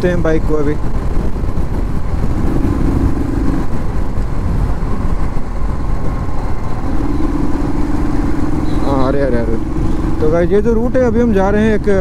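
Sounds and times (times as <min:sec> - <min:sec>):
wind rumble on microphone: 0:00.0 - 0:12.0
motorcycle engine revving: 0:01.8 - 0:04.3, 0:06.7 - 0:12.0.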